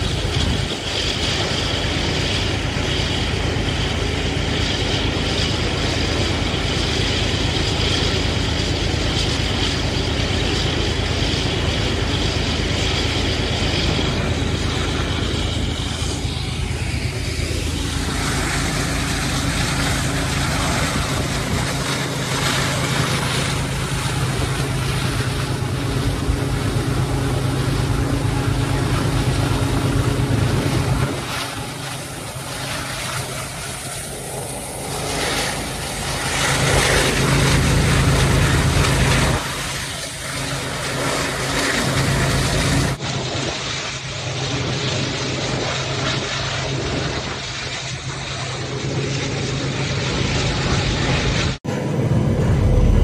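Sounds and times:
locomotive engines running hard: 0:00.0 - 0:53.0.

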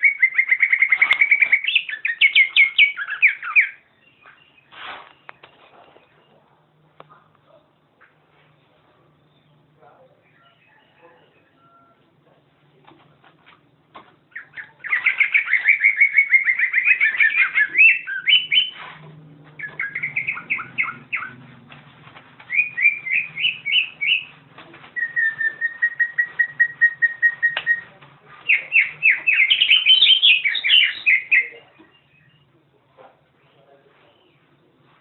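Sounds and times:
bird chattering song: 0:00.0 - 0:06.5, 0:14.3 - 0:18.9, 0:19.6 - 0:21.5, 0:22.4 - 0:32.6
bird whistled notes: 0:14.4 - 0:18.8, 0:19.6 - 0:21.4, 0:22.5 - 0:24.3, 0:25.0 - 0:27.9, 0:28.5 - 0:32.4.

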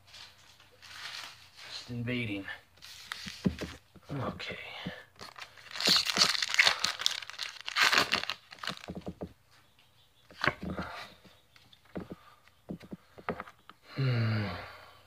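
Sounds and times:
foil wrapper tearing and crinkling: 0:05.2 - 0:09.0.

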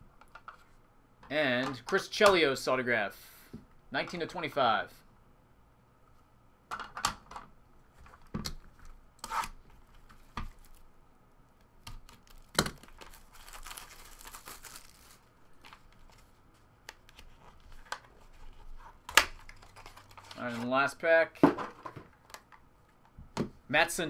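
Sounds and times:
plastic wrap tearing and crinkling: 0:11.9 - 0:16.3, 0:18.5 - 0:20.6.

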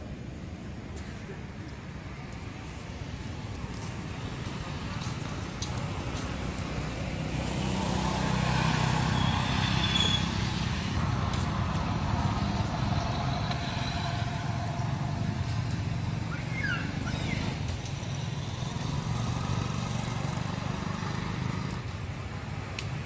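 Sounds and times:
vehicle engine running: 0:10.4 - 0:16.3.

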